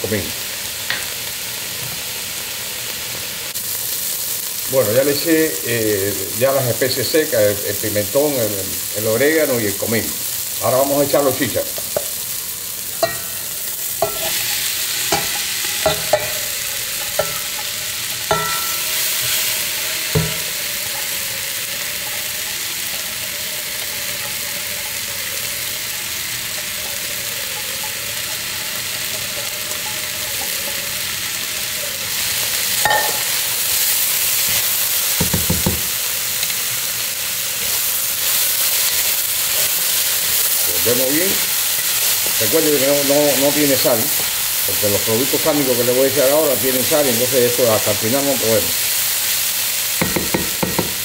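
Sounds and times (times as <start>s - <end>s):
sofrito sizzling in a pot: 0.0s - 51.0s
spoon clinking against pot: 13.0s - 13.4s, 14.0s - 19.4s, 32.8s - 33.3s.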